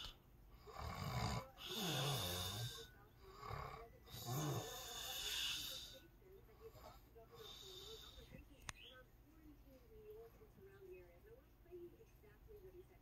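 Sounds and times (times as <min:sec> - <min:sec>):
man snoring: 0:00.0 - 0:06.0.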